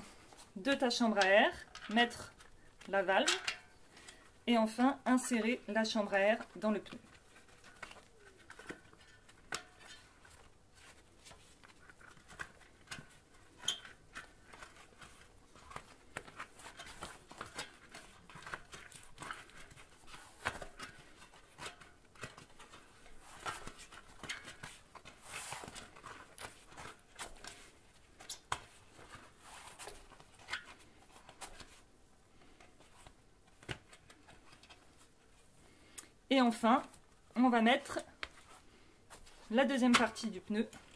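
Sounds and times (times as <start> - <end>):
rubber rubbing: 6.2 - 31.9.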